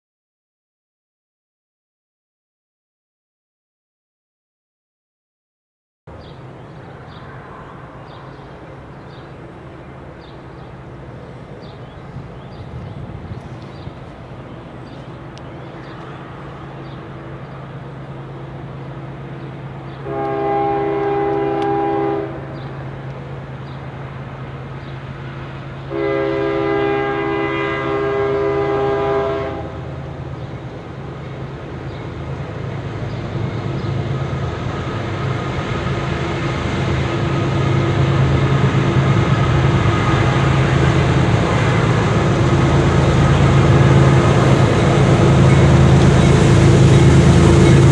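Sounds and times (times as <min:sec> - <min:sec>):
locomotive engine drone: 0:06.1 - 0:47.9
train cars rumbling: 0:06.1 - 0:47.9
multi-chime train horn: 0:20.0 - 0:22.6, 0:25.9 - 0:29.8.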